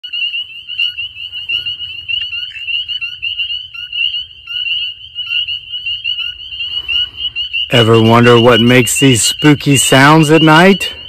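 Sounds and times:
frogs peeping: 0.0 - 11.0.

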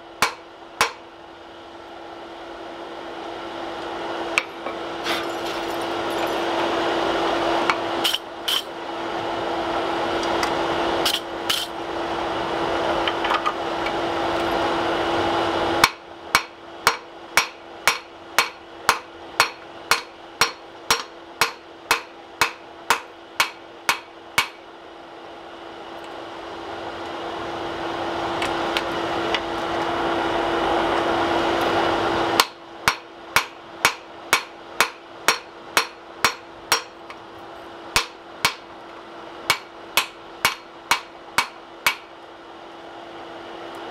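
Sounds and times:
constant hum: 0.0 - 43.9
hammer striking steel on anvil: 0.2 - 1.0, 15.8 - 24.6, 32.4 - 37.1, 37.9 - 38.7, 39.5 - 42.1.

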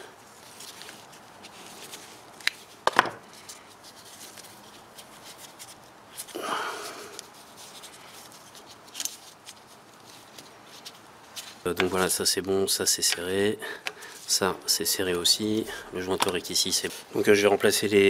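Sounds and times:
short rustle: 0.2 - 12.6.

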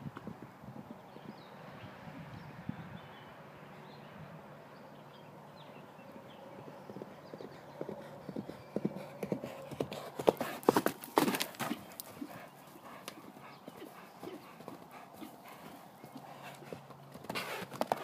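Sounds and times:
horse hooves galloping on dirt: 6.3 - 18.0.

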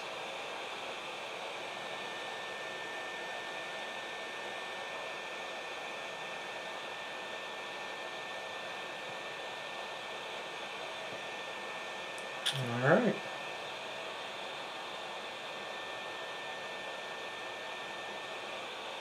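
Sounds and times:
thin high whine: 12.4 - 13.4.

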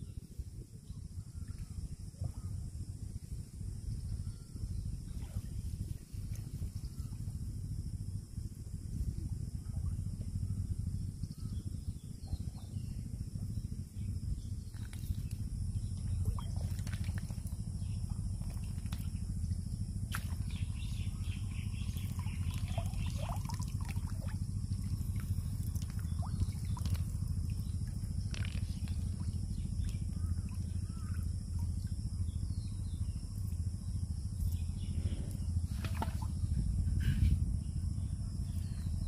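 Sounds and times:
steady low rumble: 0.0 - 39.0
water splashing and dripping: 16.3 - 17.6, 22.0 - 29.3.

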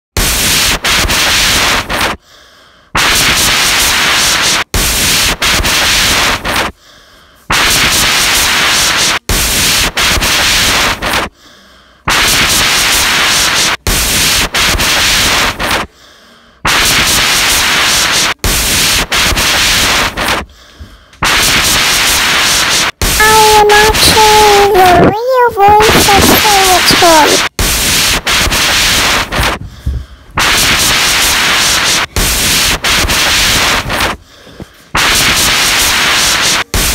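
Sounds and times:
hiss of static: 0.2 - 2.2, 2.9 - 6.8, 7.5 - 11.3, 12.0 - 15.9, 16.6 - 20.5, 21.2 - 29.6, 30.4 - 34.2, 34.8 - 36.9.

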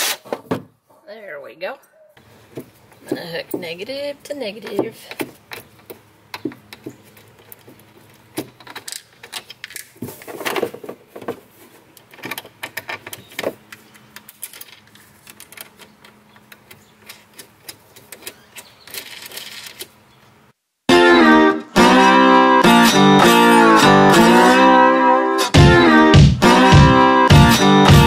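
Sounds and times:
small metallic clicks and rattles: 5.1 - 10.0, 12.0 - 19.9.

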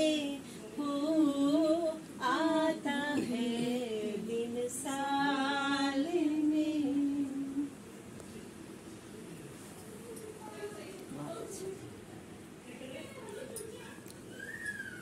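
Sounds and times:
woman singing unaccompanied: 0.0 - 7.8.

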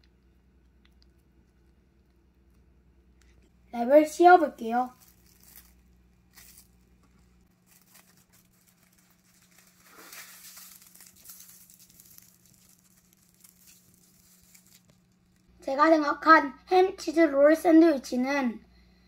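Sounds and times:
cling wrap crinkling: 4.6 - 15.5.

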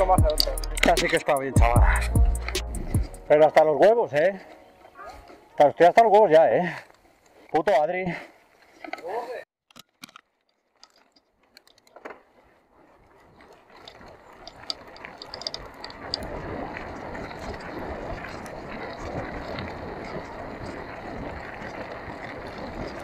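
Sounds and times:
bike clicks and rattle: 0.0 - 7.5, 8.6 - 23.0
tyre rumble on loose dirt: 11.4 - 23.0
wind on microphone: 13.2 - 23.0.

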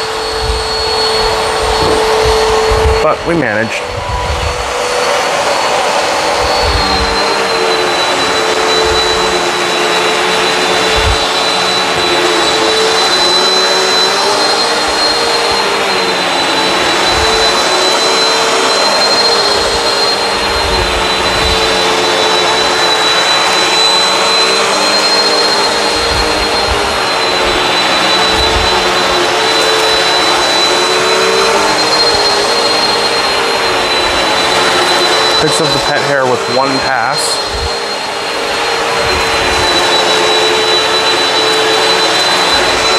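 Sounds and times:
vacuum cleaner running: 0.0 - 42.9.

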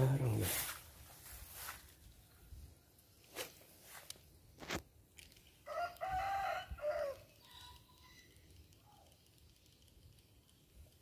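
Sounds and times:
rooster crowing: 5.7 - 8.3
sharp clicks: 7.7 - 11.0.

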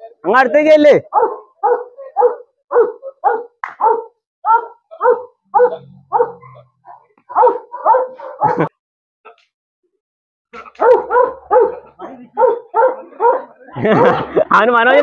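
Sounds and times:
dog barking aggressively: 1.1 - 8.7, 10.8 - 14.2.

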